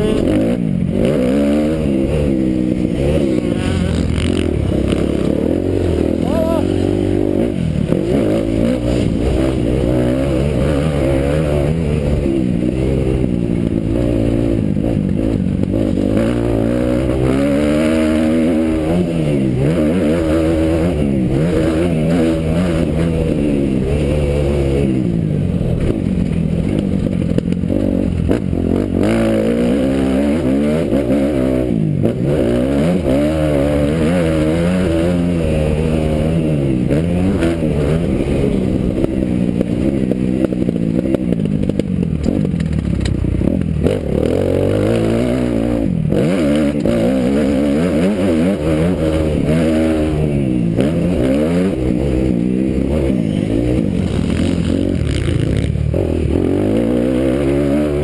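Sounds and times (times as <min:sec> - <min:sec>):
motocross bike engine revving: 0:00.0 - 0:58.0.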